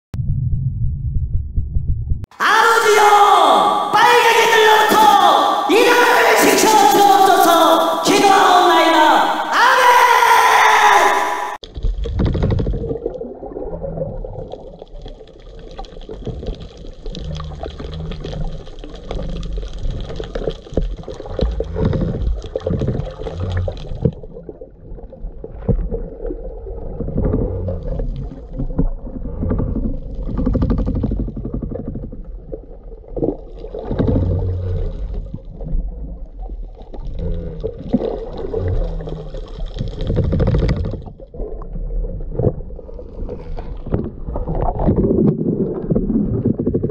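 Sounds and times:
underwater water rumble: 0.1s - 2.3s, 11.6s - 46.9s.

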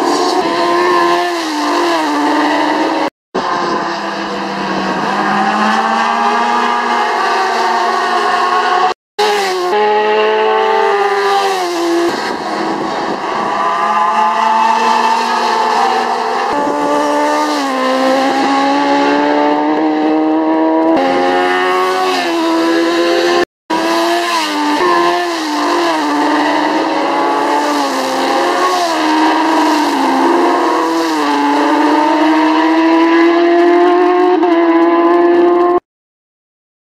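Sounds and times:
racing motorcycles at full throttle: 0.0s - 35.8s.

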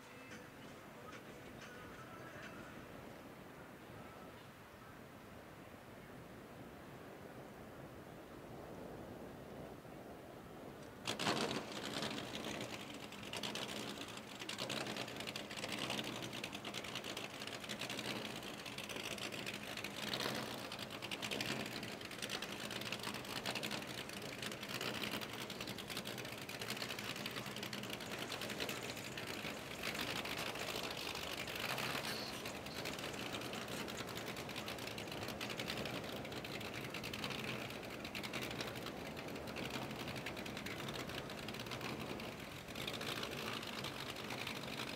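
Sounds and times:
boat engine idling: 11.0s - 44.9s.

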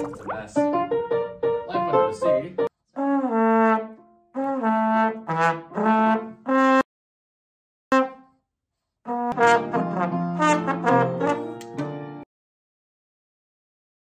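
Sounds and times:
grand piano: 0.0s - 2.7s, 9.3s - 12.2s
trombone: 3.0s - 6.8s, 7.9s - 8.2s, 9.1s - 11.6s.

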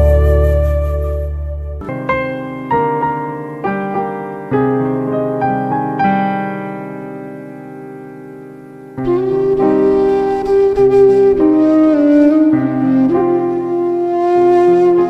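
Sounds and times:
slow piano melody: 0.0s - 15.0s.

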